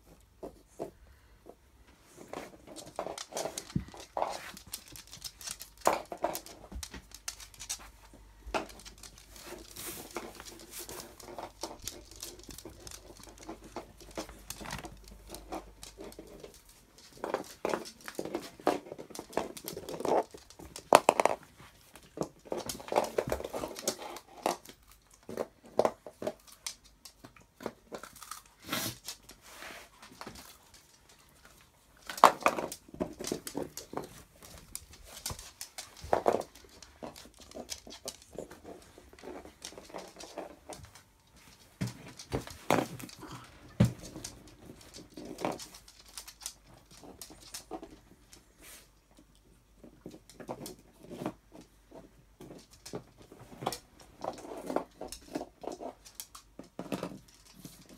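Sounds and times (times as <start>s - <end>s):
dogs crunching and chewing: 2.0s - 57.9s.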